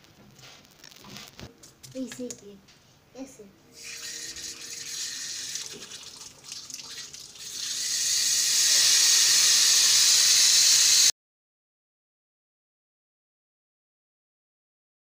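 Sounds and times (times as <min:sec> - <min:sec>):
tap water running into sink: 0:03.8 - 0:11.0.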